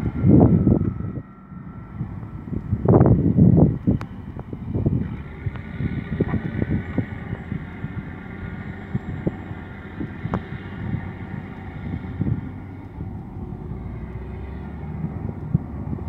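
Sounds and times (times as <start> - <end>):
heavy diesel engines rumbling: 0.0 - 16.0.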